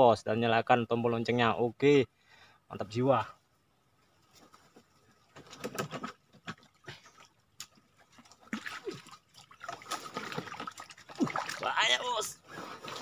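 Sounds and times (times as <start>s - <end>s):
trap frame knocking and scraping: 5.3s - 6.8s
small water splashes: 5.8s - 12.0s.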